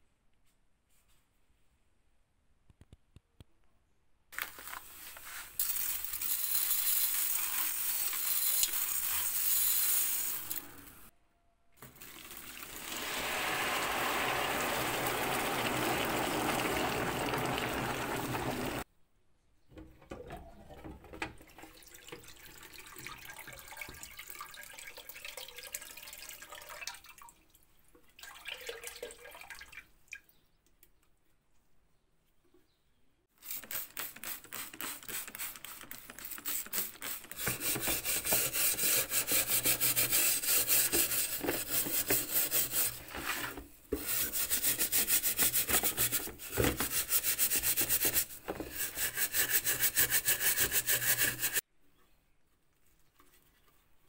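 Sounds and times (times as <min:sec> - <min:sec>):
water pouring into plastic tub: 0:11.8 - 0:18.8, 0:21.4 - 0:29.9.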